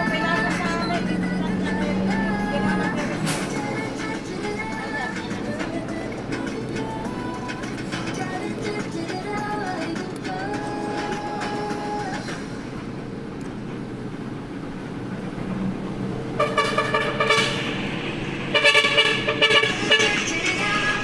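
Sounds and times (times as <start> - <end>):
bus engine rumble: 0.0 - 21.0
vehicle horn blast: 16.4 - 17.7, 18.5 - 20.3.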